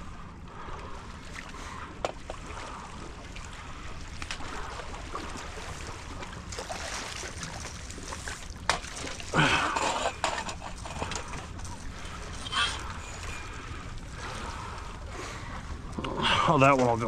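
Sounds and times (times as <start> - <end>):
fish splashing in water: 1.4 - 10.7.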